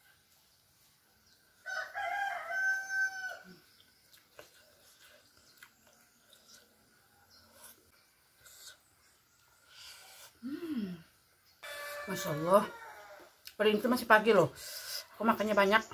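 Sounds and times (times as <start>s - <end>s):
rooster crowing: 1.6s - 3.6s, 11.6s - 13.4s.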